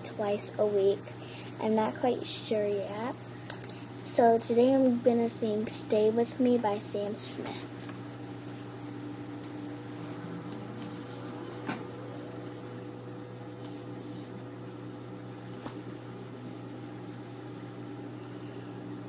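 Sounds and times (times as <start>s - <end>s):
machine humming: 6.2s - 19.0s.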